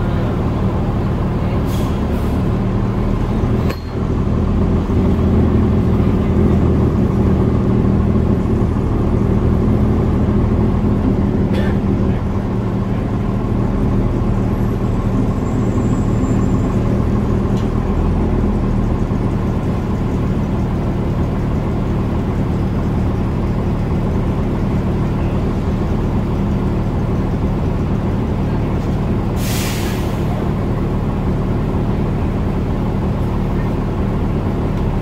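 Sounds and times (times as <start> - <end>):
bus engine idling: 0.0 - 35.0
compressed air hiss: 29.4 - 30.2.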